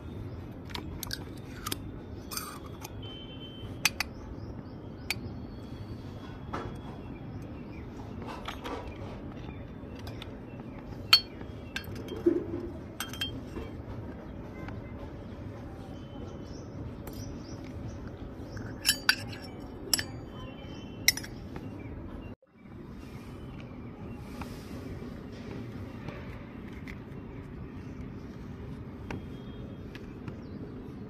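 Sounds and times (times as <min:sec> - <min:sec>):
metal toy pots clinking: 0:01.0 - 0:03.0, 0:11.1 - 0:13.7, 0:18.6 - 0:20.4, 0:21.0 - 0:21.5.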